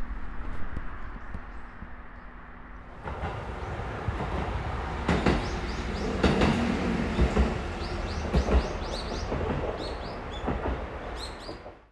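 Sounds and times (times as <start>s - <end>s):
diesel railcar running: 2.6s - 11.9s.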